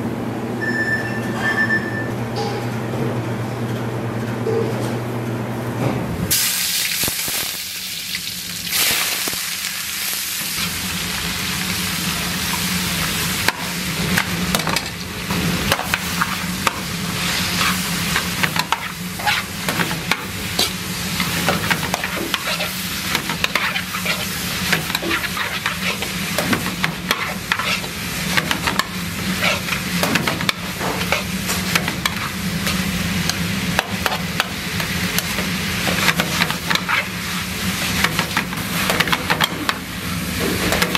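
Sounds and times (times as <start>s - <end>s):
vegetables sizzling in wok: 6.3s - 40.9s.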